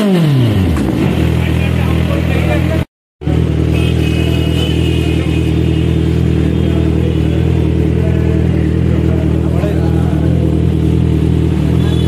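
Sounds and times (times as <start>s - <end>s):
motorcycle engine idling: 0.2s - 12.0s.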